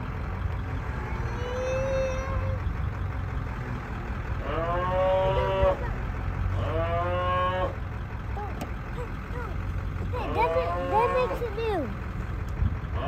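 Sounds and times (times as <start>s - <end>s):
vehicle rumbling on road: 0.0s - 13.0s
cattle bawling: 4.4s - 6.0s, 6.6s - 7.8s.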